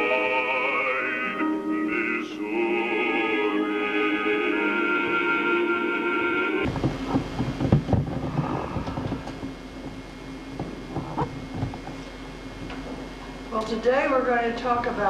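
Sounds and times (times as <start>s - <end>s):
intro music: 0.0s - 6.8s
low hum: 0.0s - 15.0s.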